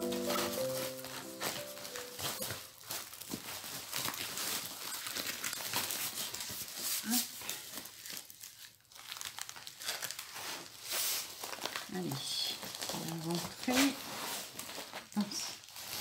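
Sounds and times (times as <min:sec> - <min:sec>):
packaging crinkling and rustling: 0:00.0 - 0:16.0.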